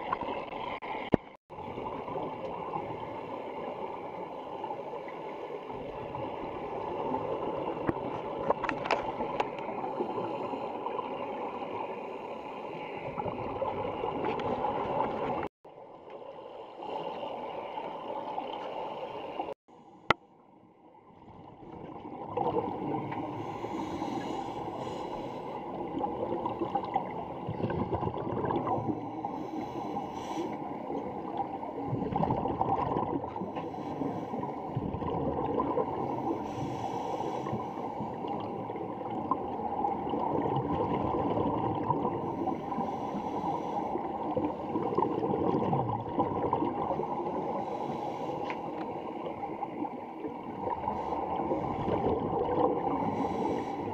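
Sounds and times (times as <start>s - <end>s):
underwater bubbling and gurgling: 0.0s - 53.9s.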